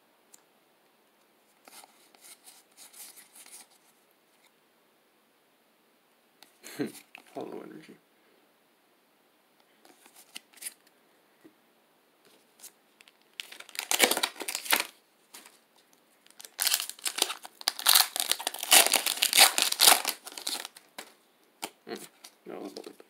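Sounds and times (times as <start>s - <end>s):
foil wrapper crinkling: 13.0s - 15.5s, 16.2s - 23.0s.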